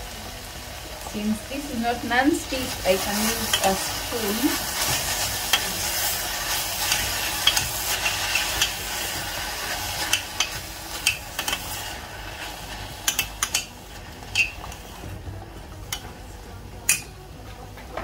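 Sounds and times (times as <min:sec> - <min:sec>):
spinach sizzling: 0:00.0 - 0:17.0
metal spoon scraping pot: 0:14.3 - 0:14.7.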